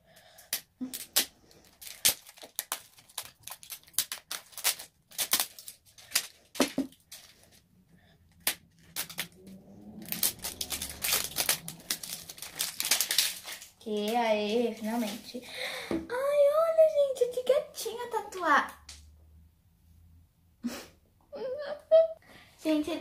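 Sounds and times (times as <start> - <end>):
packaging being torn and crinkled: 0.2 - 7.6, 8.3 - 15.2.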